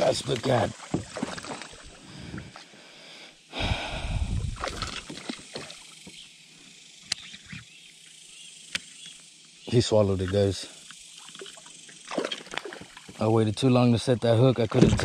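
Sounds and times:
fish splashing and rustling: 0.0 - 2.6, 4.3 - 6.2, 11.0 - 13.2
sharp click: 8.7 - 9.1.

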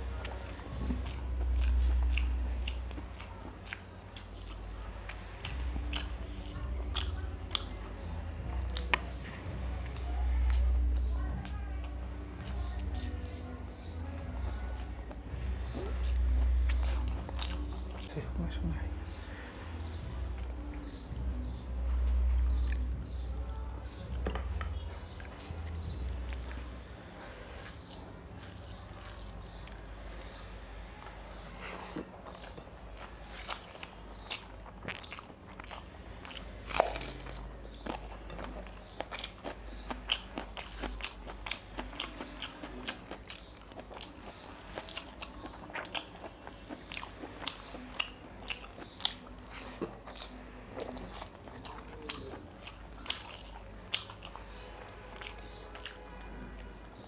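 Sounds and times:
wet chewing and mouth smacks: 0.2 - 10.7, 27.5 - 57.0.

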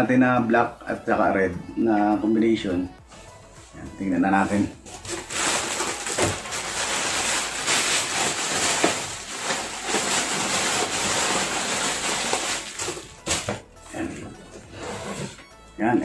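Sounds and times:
plastic packaging crinkling: 4.8 - 14.1.

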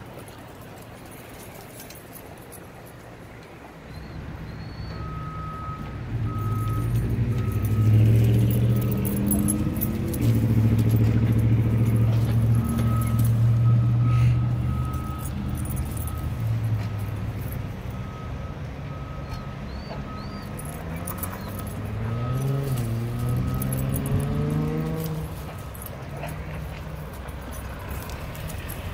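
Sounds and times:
diesel engine revving: 4.2 - 28.9
backup alarm beeping: 4.7 - 9.8, 12.0 - 16.5.

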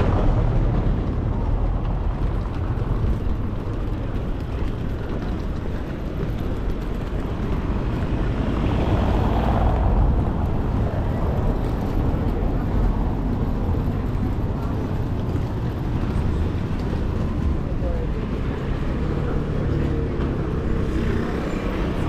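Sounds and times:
low rumble of vehicles: 0.0 - 22.0.

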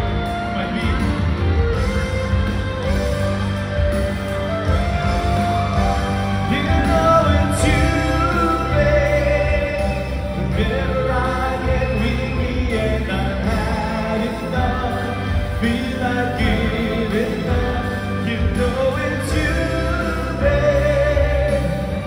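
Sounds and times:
man singing into microphone: 0.0 - 2.0, 6.4 - 22.0
instrumental backing with bass: 0.0 - 22.0.

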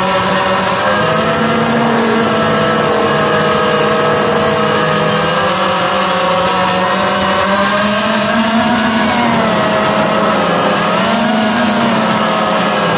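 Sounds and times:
drone motors whining: 0.0 - 12.9
steady rushing hiss: 0.9 - 6.4.

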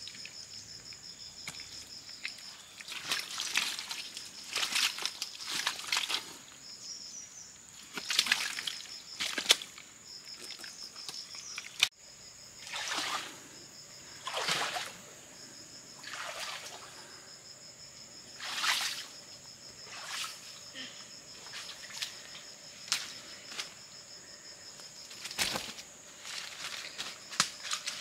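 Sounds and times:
water splashing and sloshing: 1.4 - 6.4, 7.8 - 11.9, 12.6 - 17.3, 18.2 - 23.8, 25.1 - 28.0.

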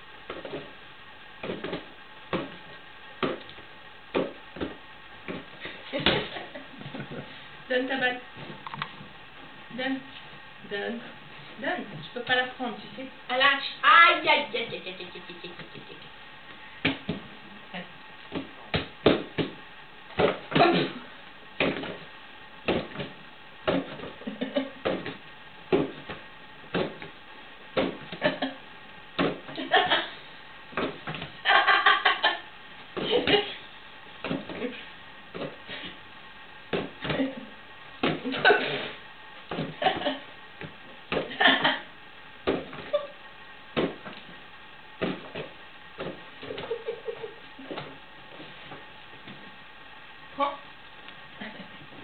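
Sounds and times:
ball knocks and thuds: 0.2 - 0.8, 1.4 - 7.2, 16.8 - 17.4, 18.2 - 21.0, 21.6 - 28.5, 29.2 - 30.0, 30.7 - 31.4, 34.2 - 35.7, 36.7 - 37.4, 38.0 - 41.8, 42.4 - 43.0, 43.7 - 44.4, 45.0 - 49.5.

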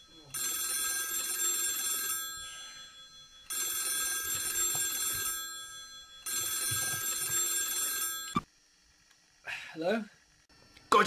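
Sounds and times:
mobile phone ringing: 0.0 - 8.5.

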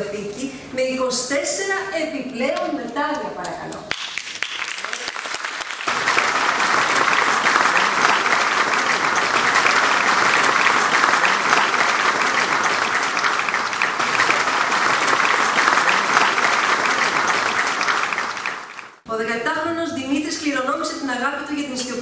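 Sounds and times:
audience applauding: 3.9 - 19.0.

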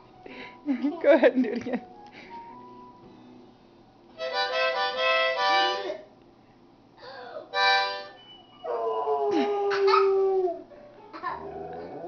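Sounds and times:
harmonica chords: 4.1 - 6.1, 7.0 - 8.4.

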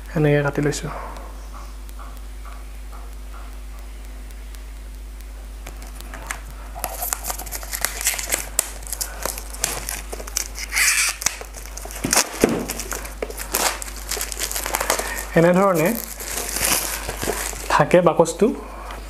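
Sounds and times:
plastic wrap crinkling and tearing: 5.7 - 18.0.

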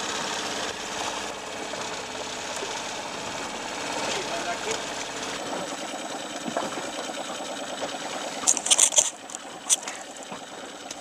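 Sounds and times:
fishing reel whirring: 3.5 - 11.0
sharp high clicks: 8.4 - 10.2.

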